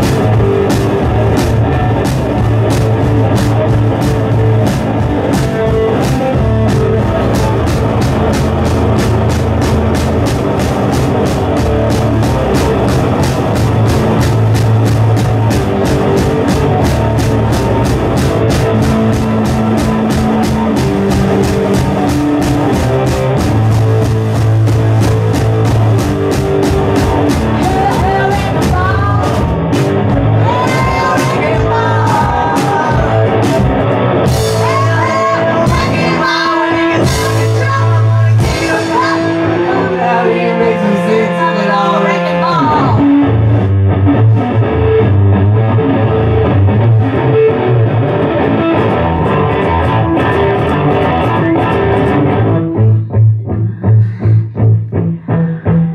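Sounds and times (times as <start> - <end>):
fast drumming: 0.0 - 39.6
rock band playing: 0.0 - 55.9
person singing: 26.9 - 29.7, 30.4 - 33.7, 34.4 - 43.2.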